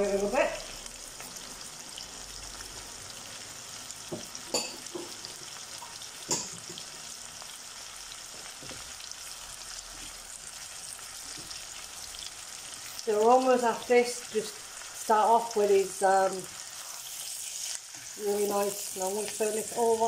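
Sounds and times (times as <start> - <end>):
food sizzling in oil: 0.0 - 20.0.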